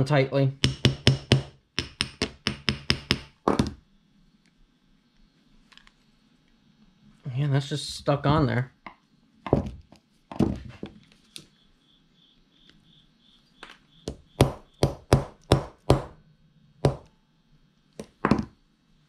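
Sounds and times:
hammer tapping metal: 0.6s - 3.7s, 14.1s - 16.1s.

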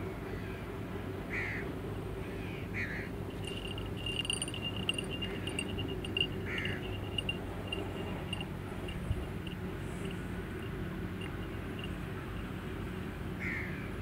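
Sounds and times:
low steady hum: 0.8s - 14.0s
high chirping trill: 3.3s - 10.2s
crows cawing: 6.5s - 6.8s.

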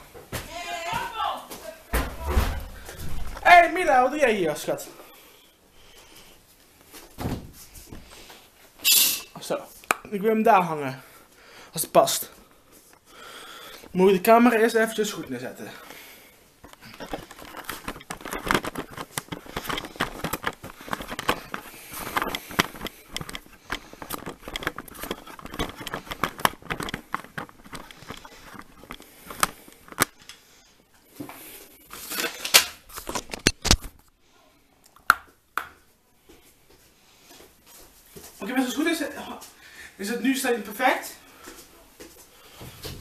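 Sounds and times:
camera handling rustling and scraping: 16.6s - 30.4s, 31.9s - 34.1s
small clicks and knocks: 16.7s - 30.4s.

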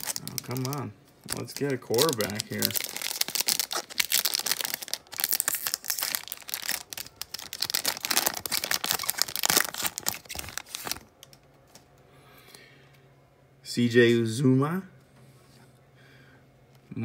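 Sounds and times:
wrapper crinkling and tearing: 0.0s - 11.4s.

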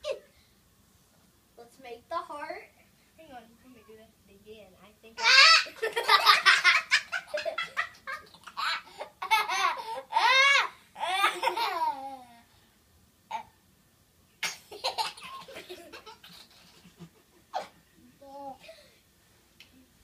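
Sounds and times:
young children laughing: 5.2s - 12.2s, 14.7s - 18.9s.

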